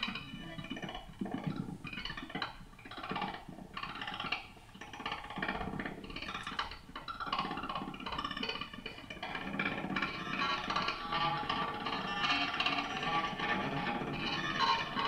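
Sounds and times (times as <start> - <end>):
glitchy granular electric guitar: 7.2 - 15.0.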